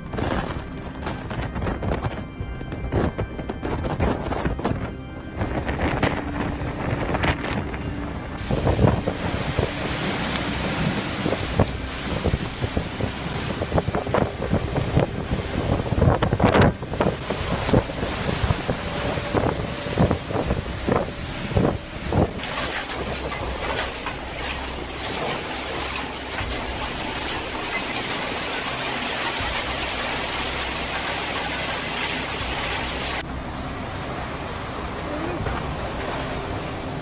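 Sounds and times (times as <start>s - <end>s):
wind buffeting microphone: 0.0s - 33.3s
heavy rain hissing: 8.4s - 13.8s, 17.2s - 33.2s.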